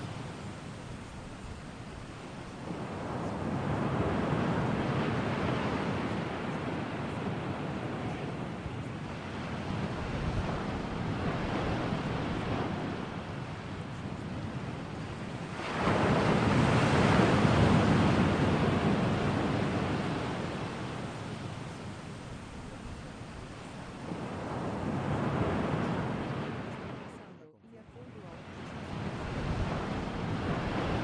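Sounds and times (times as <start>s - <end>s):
ocean surf: 0.0s - 31.0s.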